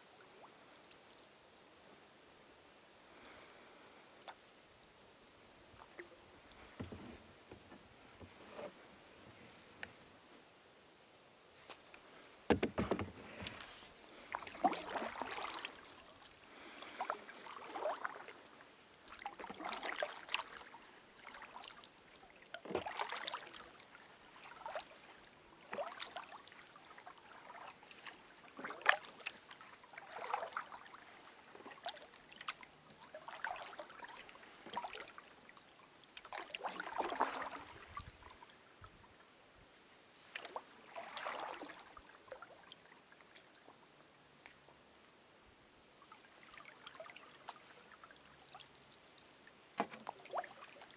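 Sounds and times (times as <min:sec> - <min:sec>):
kayak paddle strokes in water: 0:11.7 - 0:38.7, 0:40.2 - 0:43.5.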